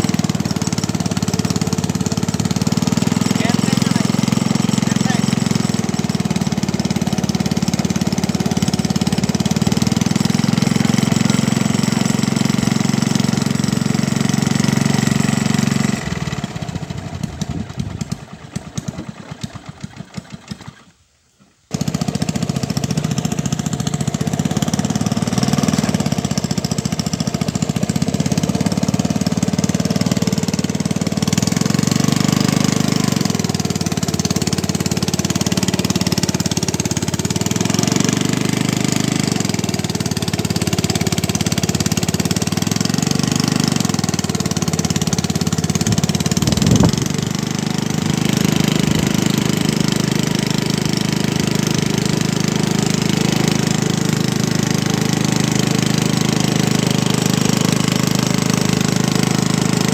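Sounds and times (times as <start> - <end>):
small engine running: 0.0 - 59.9.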